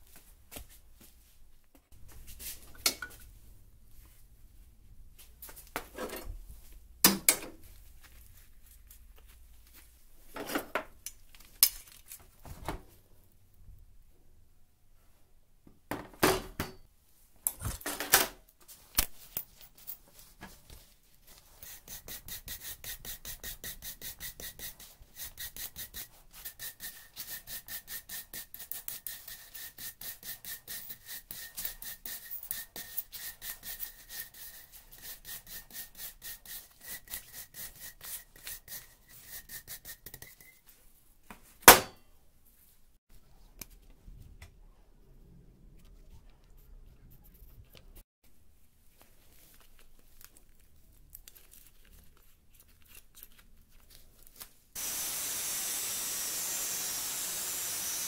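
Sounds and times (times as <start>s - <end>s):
wire brush scrubbing chain: 21.5s - 40.5s.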